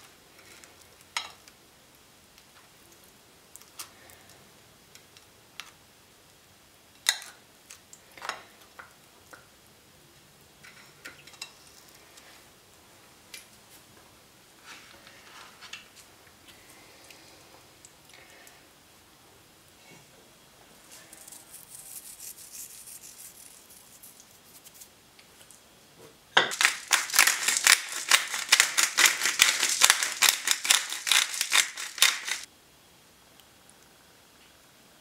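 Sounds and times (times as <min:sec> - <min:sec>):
pepper mill grinding: 0:20.9 - 0:24.9, 0:26.5 - 0:32.5.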